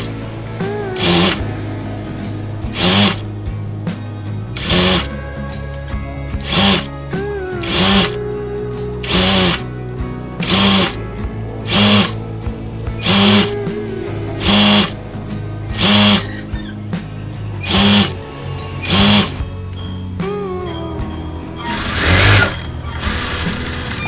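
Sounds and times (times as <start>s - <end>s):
background music: 0.0s - 24.0s
sewing machine stitching: 1.0s - 1.4s, 6.4s - 6.9s, 9.1s - 9.6s, 10.4s - 11.0s, 18.8s - 19.4s.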